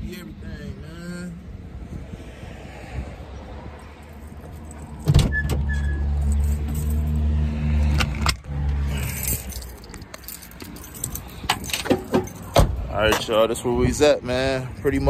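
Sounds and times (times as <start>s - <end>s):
keys jangling: 4.1s - 5.1s, 6.1s - 7.3s, 8.9s - 12.7s.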